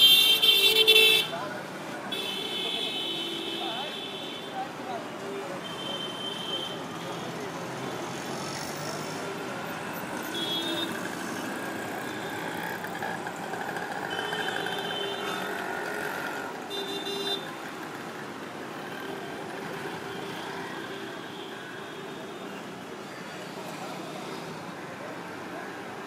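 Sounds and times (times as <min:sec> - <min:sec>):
street traffic: 0:00.0 - 0:26.0
motorcycles driving past: 0:07.7 - 0:20.9.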